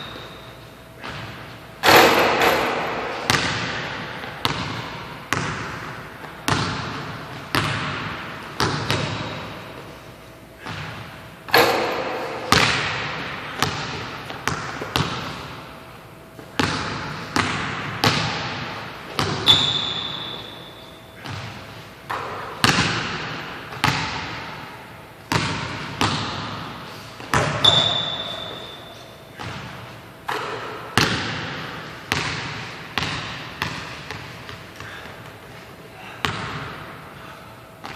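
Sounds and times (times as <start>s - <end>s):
shoe squeaks: 0.0s - 0.6s, 19.4s - 21.2s, 27.5s - 29.4s
basketball bouncing on wooden floor: 1.0s - 9.5s, 10.6s - 15.5s, 16.4s - 20.5s, 21.2s - 24.5s, 25.3s - 35.1s.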